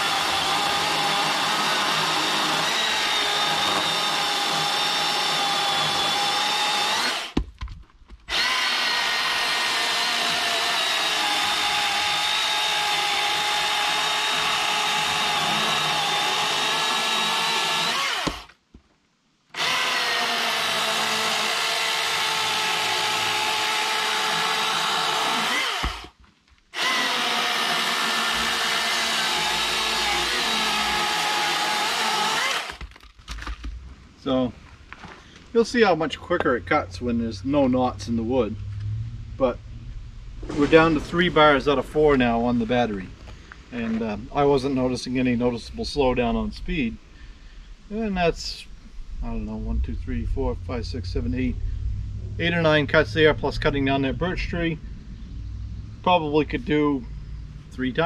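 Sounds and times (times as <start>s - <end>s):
chainsaw cutting wood: 0.0s - 7.4s, 8.3s - 18.6s, 19.5s - 33.0s.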